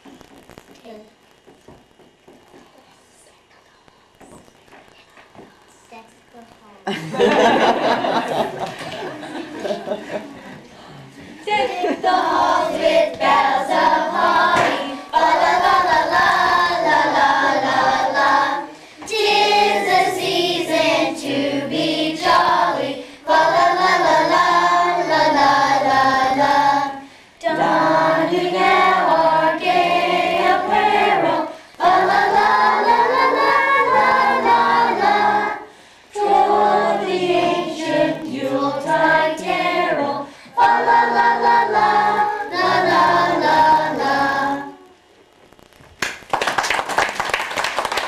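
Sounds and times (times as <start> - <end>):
girls singing together: 11.3 - 45.0.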